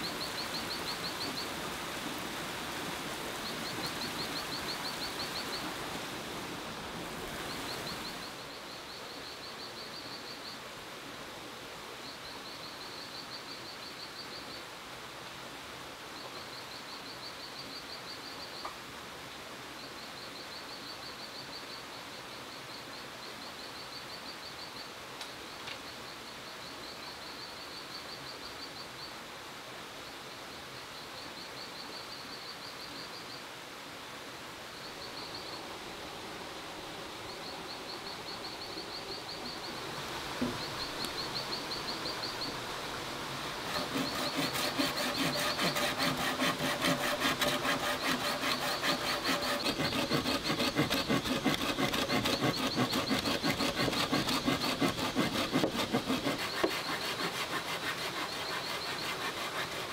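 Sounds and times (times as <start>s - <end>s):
insects chirping: 0.0s - 6.3s, 7.3s - 10.6s, 19.9s - 29.1s, 34.6s - 59.9s
quiet steady hiss: 0.0s - 59.9s
saw cutting bamboo: 43.6s - 59.9s.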